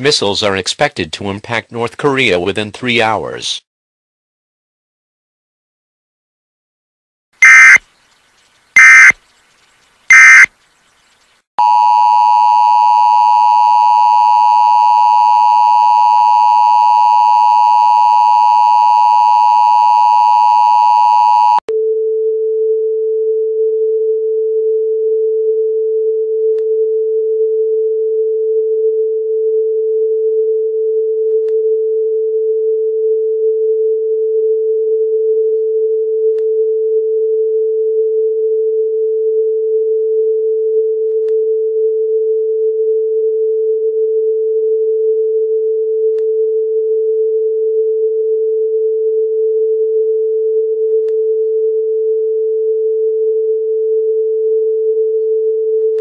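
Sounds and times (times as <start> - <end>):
digital data bursts: 7.4 - 7.8, 8.8 - 9.1, 10.1 - 10.5
two-tone attention signal: 7.4 - 7.8, 8.8 - 9.1, 10.1 - 10.5.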